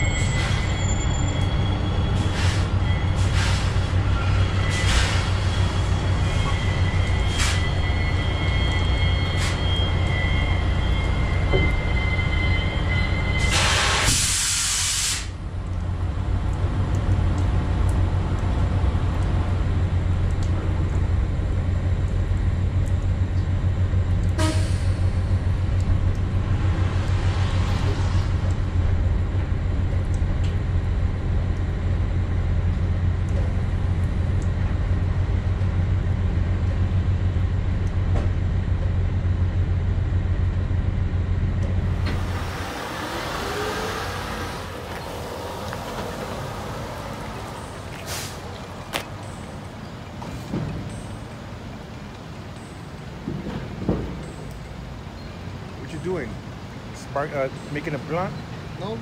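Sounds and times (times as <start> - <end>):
air brake hiss: 2.3 - 3.9, 13.4 - 15.4, 24.4 - 25.2, 48.0 - 48.4.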